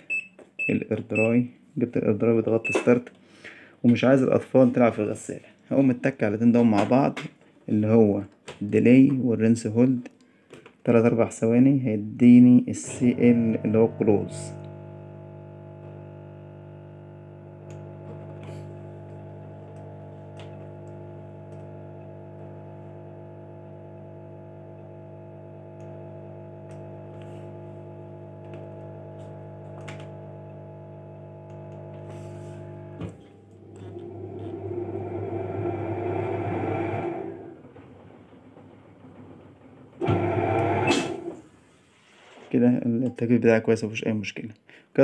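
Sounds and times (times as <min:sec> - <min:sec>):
washing machine humming: 0:12.8 - 0:41.7.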